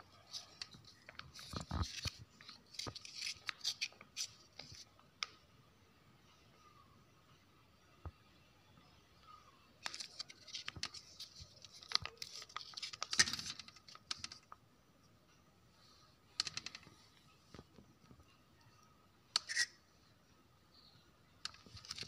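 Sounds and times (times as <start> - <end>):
plastic pouch crinkling: 9.8 - 14.5.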